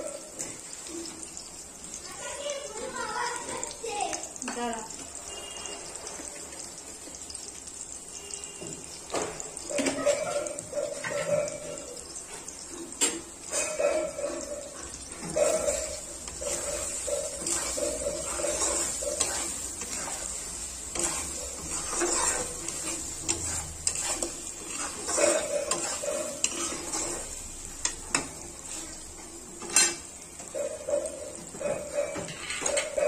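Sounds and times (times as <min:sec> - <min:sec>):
oil sizzling: 0:00.0 - 0:33.0
spatula scraping a wok: 0:10.8 - 0:30.6, 0:31.3 - 0:33.0.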